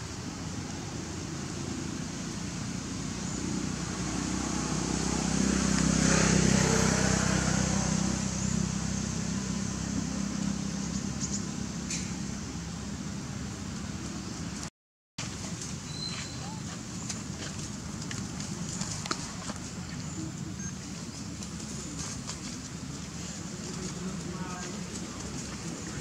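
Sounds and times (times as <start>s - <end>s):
vehicle engine passing by: 0.6s - 14.6s.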